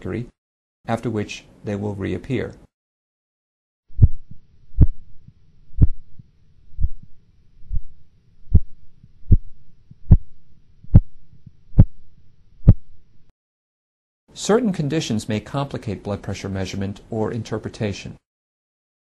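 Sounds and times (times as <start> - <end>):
heartbeat tapping through stethoscope: 4.0 - 13.0.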